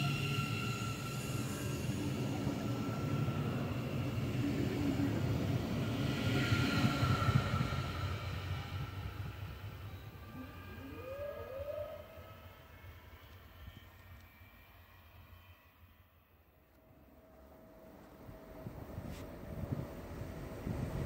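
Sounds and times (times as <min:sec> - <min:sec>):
wheels rumbling on rails: 0:17.4 - 0:21.0.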